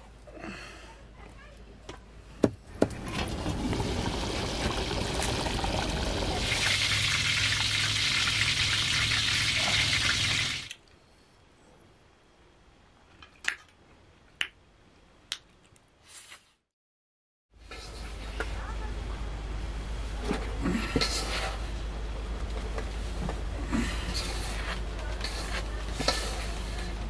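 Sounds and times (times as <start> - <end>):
water pouring: 3.0 - 10.7.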